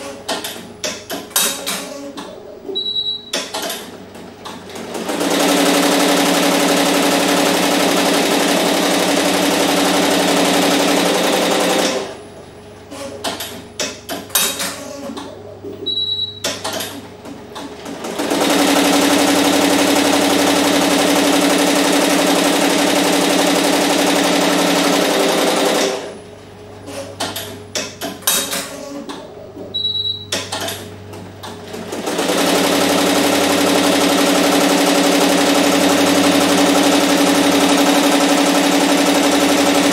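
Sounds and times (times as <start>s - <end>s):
short high beep: 15.8s - 16.5s, 29.7s - 30.3s.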